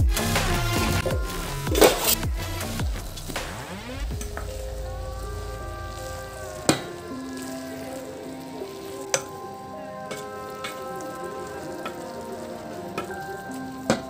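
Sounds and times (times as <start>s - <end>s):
soft background music: 0.0s - 14.0s
food sizzling in a pan: 4.2s - 14.0s.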